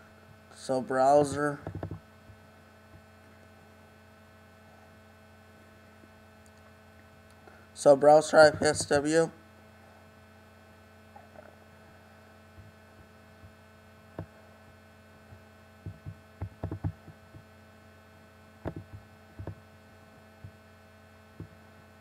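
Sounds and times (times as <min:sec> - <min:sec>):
electrical mains hum: 0:00.0 - 0:22.0
soft clicks and knocks: 0:01.6 - 0:03.0, 0:15.8 - 0:17.5, 0:18.6 - 0:19.6.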